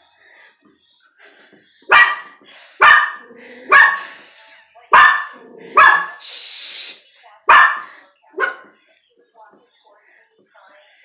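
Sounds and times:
dog barking: 1.9 - 4.1, 4.9 - 6.2, 7.5 - 8.8.

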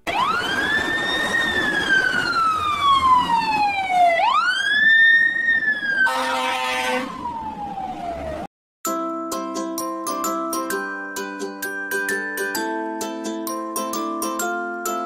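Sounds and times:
fire truck siren wailing: 0.0 - 8.5
horn blast: 6.1 - 7.2.

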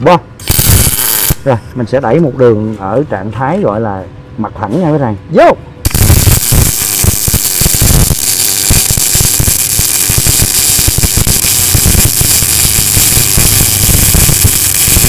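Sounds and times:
welding arc crackling sizzle: 0.4 - 1.5, 5.8 - 15.0.

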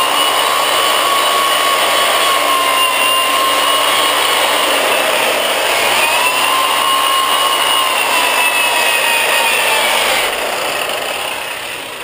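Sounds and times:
sander motor whine: 0.0 - 12.0.

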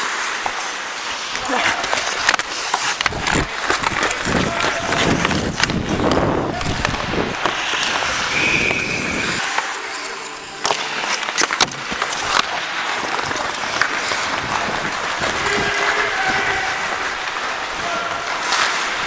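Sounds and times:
skate blades scraping ice: 0.0 - 19.0
stick hitting puck: 1.5 - 8.4, 10.6 - 17.5.

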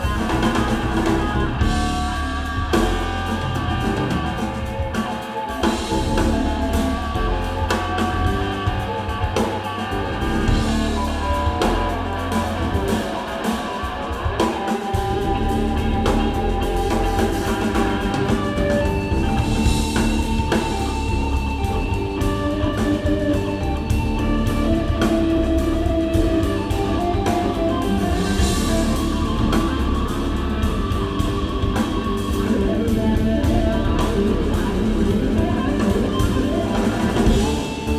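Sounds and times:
bass guitar: 0.0 - 37.9
drum kit steady beat: 0.0 - 37.9
electric guitar: 0.0 - 37.9.

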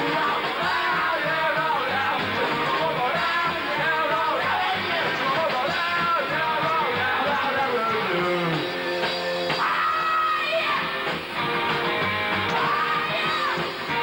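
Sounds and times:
person singing: 0.0 - 8.8, 12.5 - 14.0
drums: 0.0 - 14.0
electric guitar: 0.0 - 14.0.

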